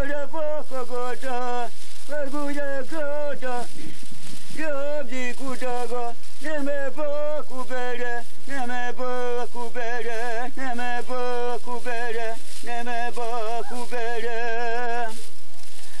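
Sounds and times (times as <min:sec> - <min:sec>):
person singing chant: 0:04.6 - 0:15.2.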